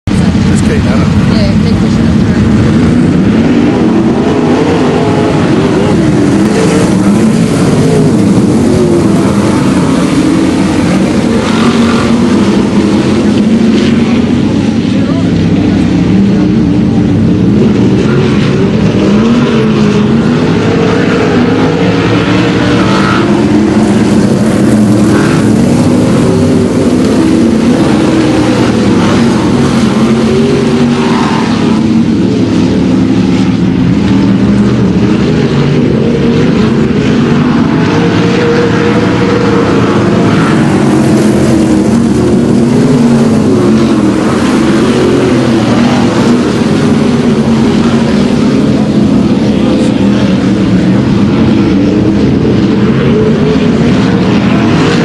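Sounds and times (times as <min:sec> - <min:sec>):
race car engines revving: 0:00.0 - 0:55.0.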